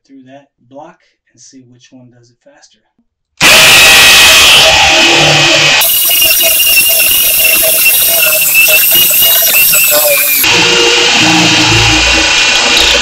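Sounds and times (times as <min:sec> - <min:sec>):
hammer drill boring into concrete: 0:03.4 - 0:13.0.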